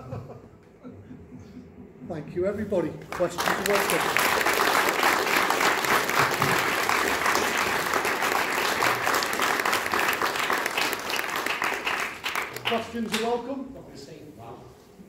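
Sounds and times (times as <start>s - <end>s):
audience applauding: 3.0s - 13.3s.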